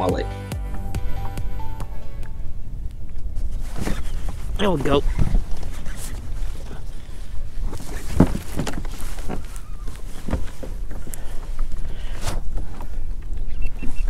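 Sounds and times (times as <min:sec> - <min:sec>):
wind buffeting microphone: 0:00.7 - 0:14.0
knocks of gear on plastic kayak: 0:08.0 - 0:09.5.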